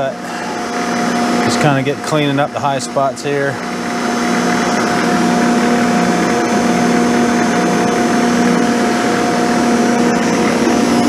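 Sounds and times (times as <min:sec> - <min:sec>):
milling machine humming and whining: 0:00.0 - 0:11.0.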